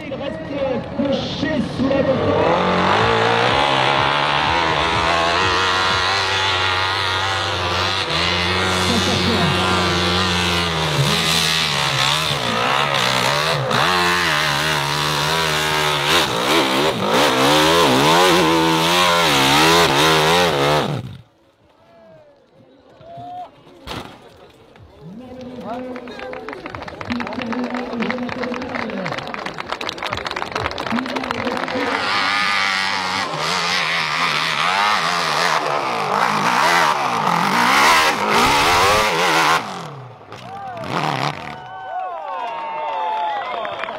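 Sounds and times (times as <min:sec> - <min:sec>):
dirt bike engine revving: 0:01.2 - 0:21.3, 0:30.9 - 0:41.6.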